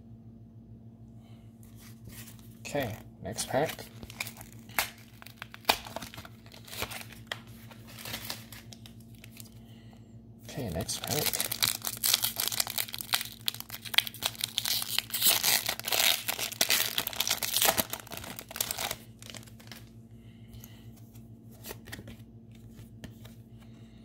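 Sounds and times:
faint handling of cards: 1.5 - 9.7, 10.5 - 24.0
foil wrapper tearing and crinkling: 2.8 - 9.6, 10.6 - 19.9.

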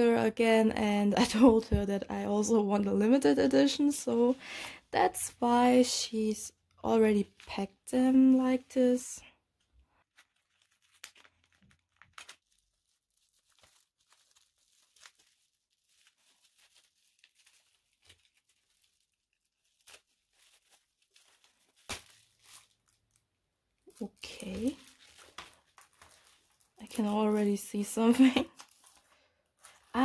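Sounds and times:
paper and bubble-wrap crinkling: 6.9 - 30.0.

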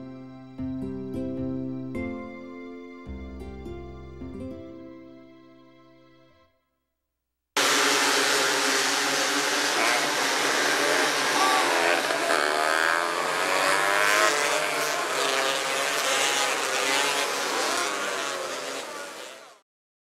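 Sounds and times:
race car engines revving: 7.6 - 19.6.

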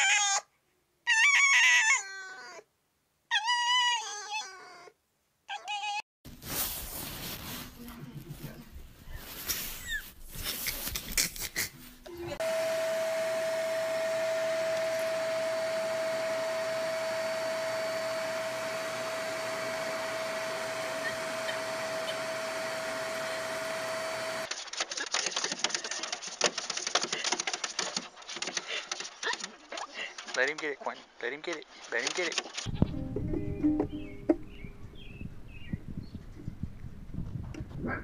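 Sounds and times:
vacuum cleaner running: 12.4 - 24.5.

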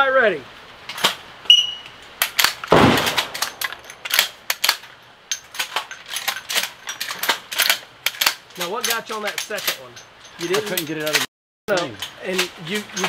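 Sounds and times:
shotgun reloading clicks: 2.2 - 9.8
sharp loud crack: 2.7 - 4.7.

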